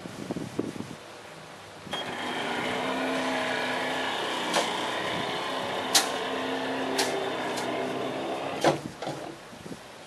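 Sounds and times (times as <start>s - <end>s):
electric motor humming whine: 1.9s - 8.6s
sharp clicks: 5.8s - 6.3s, 6.9s - 7.8s.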